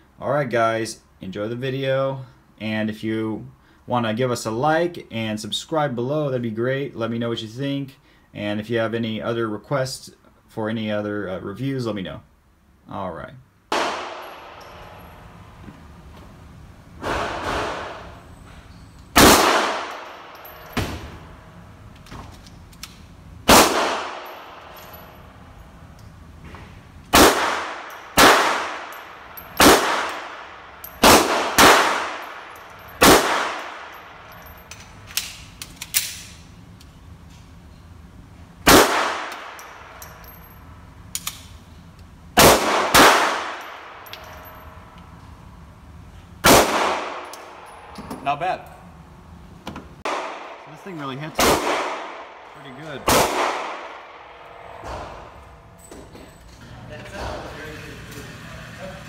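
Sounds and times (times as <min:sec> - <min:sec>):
pistol shots: 0:13.7 - 0:15.0, 0:17.0 - 0:18.2, 0:19.2 - 0:21.2, 0:23.4 - 0:24.8, 0:27.1 - 0:34.3, 0:38.6 - 0:40.0, 0:42.4 - 0:44.0, 0:46.4 - 0:47.8, 0:50.0 - 0:55.2.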